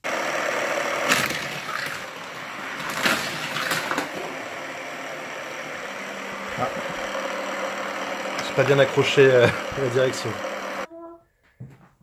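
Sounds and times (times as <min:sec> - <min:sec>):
plastic toy track clicks and knocks: 0:02.8 - 0:04.2.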